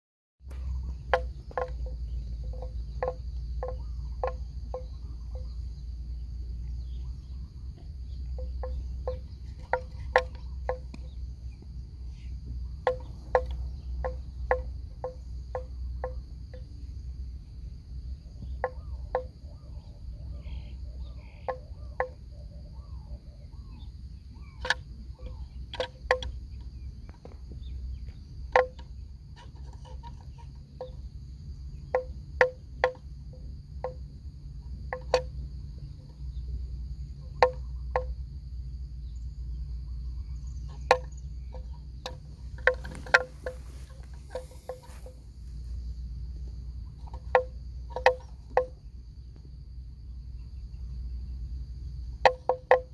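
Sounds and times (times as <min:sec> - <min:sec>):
hollow knocks from water buffalo: 0:00.4 - 0:05.8, 0:06.8 - 0:16.8, 0:18.3 - 0:19.6, 0:20.4 - 0:22.3, 0:24.4 - 0:36.3, 0:37.1 - 0:38.3, 0:40.5 - 0:49.5, 0:52.1 - 0:52.9
high insect drone: 0:00.4 - 0:52.9.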